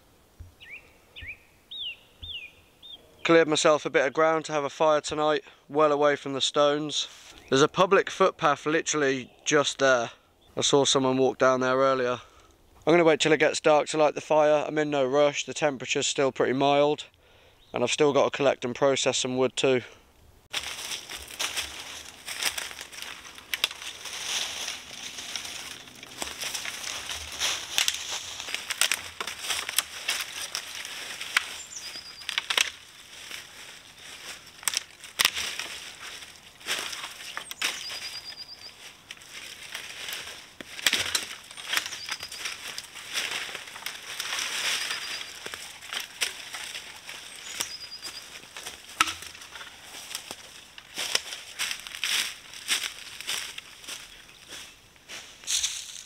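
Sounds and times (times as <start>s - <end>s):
bird chirping: 0.6s - 3.3s, 31.4s - 32.4s, 37.2s - 39.0s, 41.4s - 42.8s, 44.5s - 45.8s, 46.4s - 48.5s
dead branches cracking: 20.5s - 56.0s
footsteps crunching through dry leaves: 20.5s - 56.0s.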